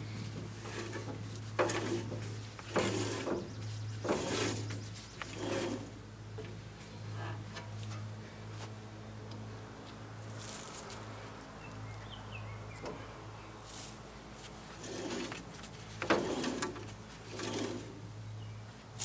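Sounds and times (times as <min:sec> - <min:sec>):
saw blade scraping: 0:00.5 - 0:06.0, 0:14.7 - 0:18.0.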